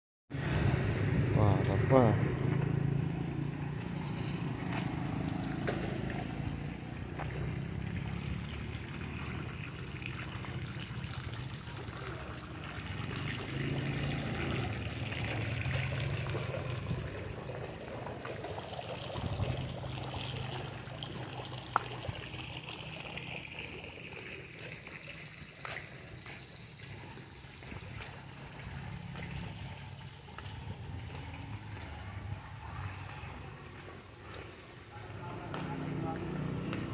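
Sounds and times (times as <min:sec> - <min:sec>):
fountain water splashing: 0:05.0 - 0:36.9.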